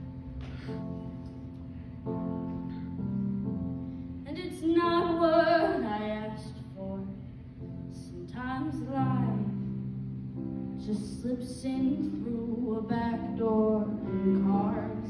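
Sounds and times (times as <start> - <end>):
woman singing ballad: 7.9 - 9.7, 10.8 - 15.0.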